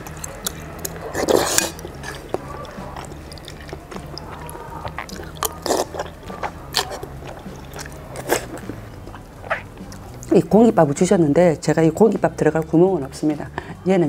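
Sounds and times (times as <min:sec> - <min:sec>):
slurping: 0:00.0 - 0:10.9
chewing: 0:00.0 - 0:11.1.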